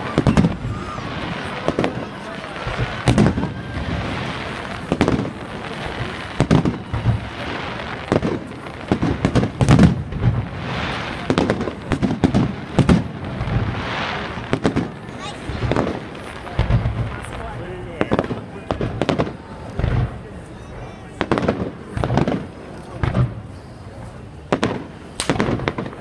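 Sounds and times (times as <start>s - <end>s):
firework shells bursting: 24.6s - 26.0s.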